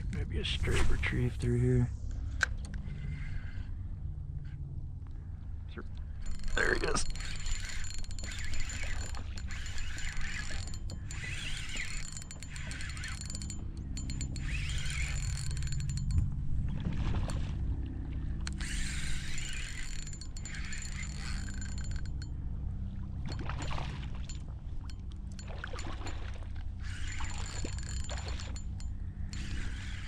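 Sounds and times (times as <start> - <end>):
steady low hum: 0.0 - 30.0
fishing reel gears whirring: 2.6 - 4.6, 6.1 - 17.5, 18.4 - 30.0
fish splashing: 25.4 - 28.6.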